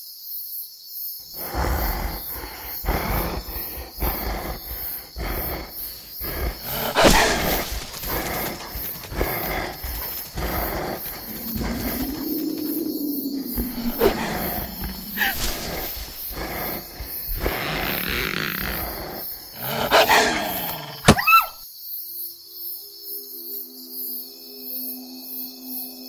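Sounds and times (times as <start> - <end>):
creature growling and snarling: 1.3 - 21.6
creature roaring: 1.4 - 21.6.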